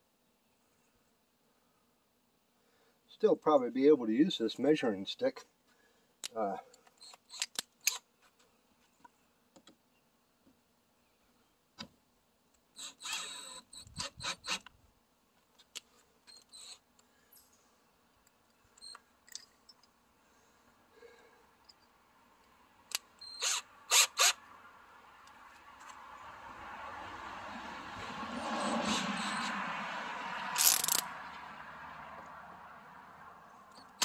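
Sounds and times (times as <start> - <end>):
drill chuck clicks and knocks: 30.6 - 31.0.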